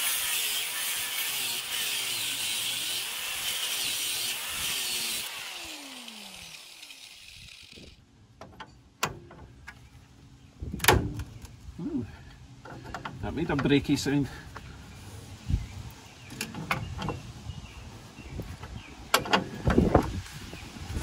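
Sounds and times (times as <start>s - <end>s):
angle grinder cutting steel: 0.0s - 8.0s
grinder spinning down: 0.0s - 8.0s.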